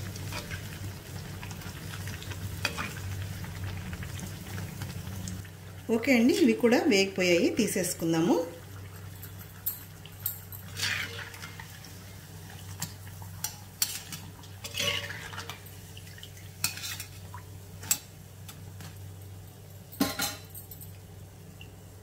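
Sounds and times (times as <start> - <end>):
frying oil sizzling: 0.0 - 20.4
wire skimmer scraping iron pan: 10.2 - 11.7, 13.8 - 15.6, 16.6 - 17.2.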